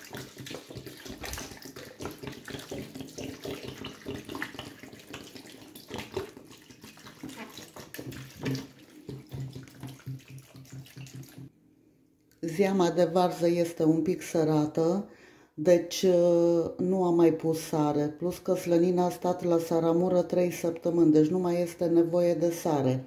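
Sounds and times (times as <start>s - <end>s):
liquid pouring and splashing into pot: 0.0s - 11.5s.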